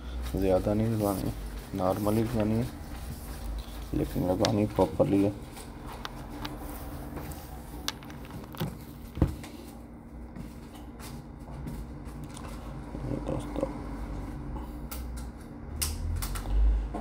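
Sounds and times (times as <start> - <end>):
steady low hum: 0.0 - 17.0
smartphone parts clicking and tapping: 7.8 - 9.3.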